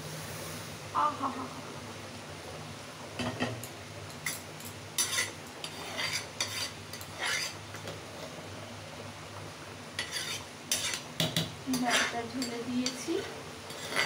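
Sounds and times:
metal scraping a pan: 0:05.0 - 0:08.0, 0:10.0 - 0:14.0.

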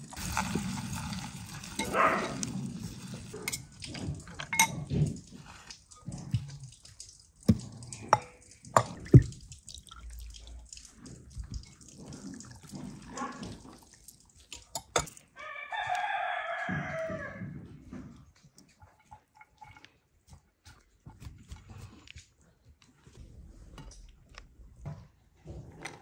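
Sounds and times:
liquid dripping into glass bowl: 0:03.4 - 0:15.2
rooster crowing: 0:15.4 - 0:17.5.

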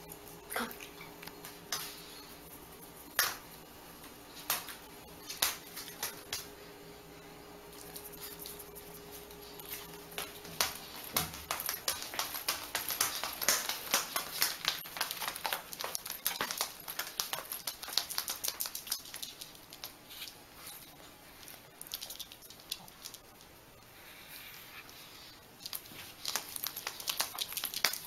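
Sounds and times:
dog boots clicking on hard floor: 0:09.8 - 0:19.9, 0:25.7 - 0:28.0.

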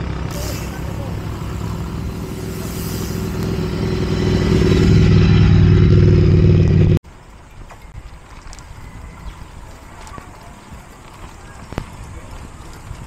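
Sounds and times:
vehicle engine running: 0:00.0 - 0:07.0
faint road noise: 0:00.0 - 0:13.0.

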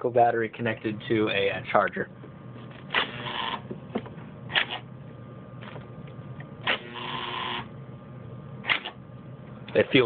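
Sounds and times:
buzzing motor whir: 0:06.6 - 0:07.7.

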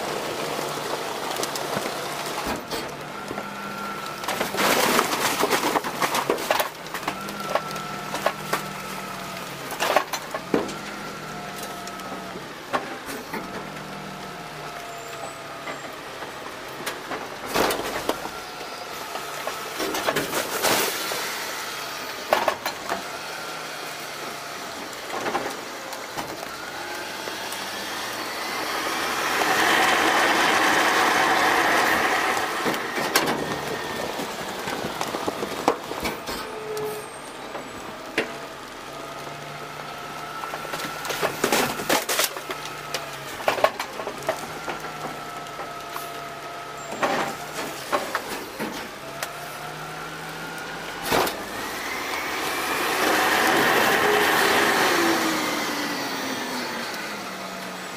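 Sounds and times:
garbage truck hydraulics whining: 0:00.0 - 0:57.9
garbage dropping into hopper: 0:51.0 - 0:51.6.

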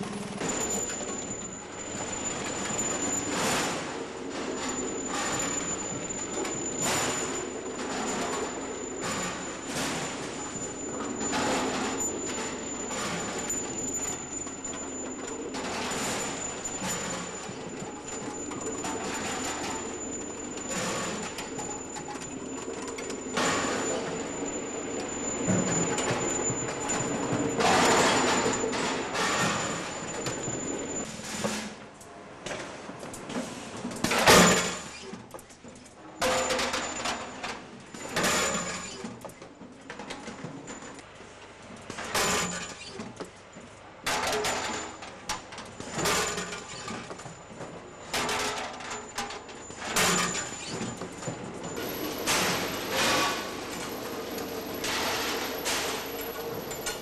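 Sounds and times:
steel bolts clattering down chute: 0:00.4 - 0:31.8, 0:44.0 - 0:57.0.

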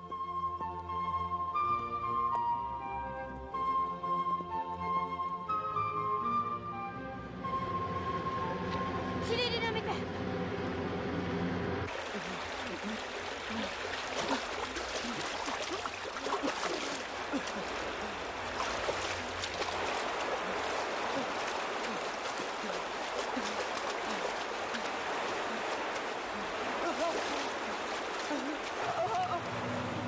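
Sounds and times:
flowing water gurgling: 0:11.9 - 0:29.6.

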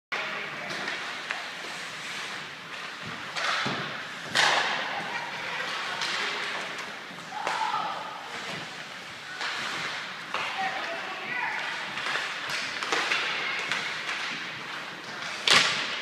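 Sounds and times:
hockey sticks and puck knocking: 0:00.7 - 0:16.0
players hitting boards: 0:03.3 - 0:04.9, 0:11.5 - 0:16.0.

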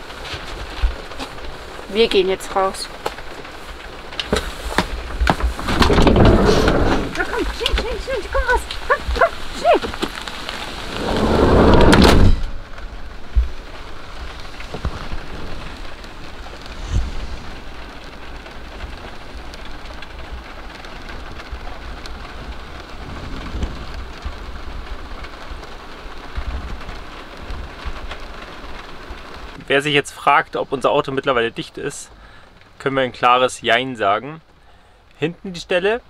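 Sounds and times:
rain on a vehicle roof: 0:00.0 - 0:36.0
dull low thumps: 0:10.7 - 0:17.9.

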